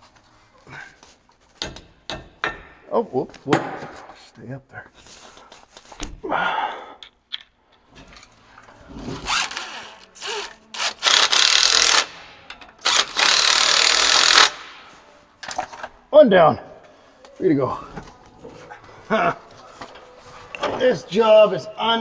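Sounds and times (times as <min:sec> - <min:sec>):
power ratchet driving bolts: 0:10.4 - 0:14.7.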